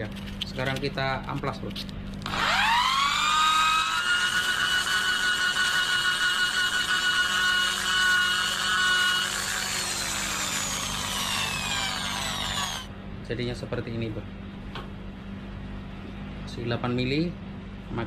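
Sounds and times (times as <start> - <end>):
electric drill whining: 2.2 - 12.9.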